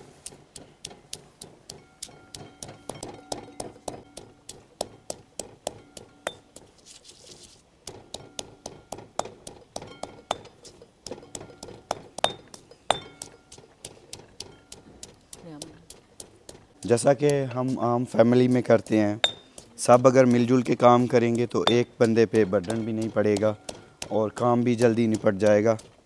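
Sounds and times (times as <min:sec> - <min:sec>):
mortar and pestle pounding: 0:00.1 - 0:06.9, 0:07.8 - 0:26.0.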